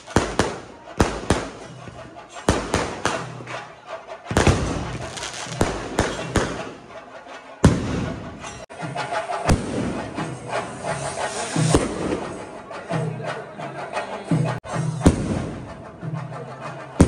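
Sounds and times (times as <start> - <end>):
fireworks bangs: 0.0 - 3.6, 4.2 - 6.9, 7.6 - 8.7, 9.4 - 12.6, 15.0 - 15.8
fireworks crackling: 0.0 - 7.0, 7.6 - 12.6.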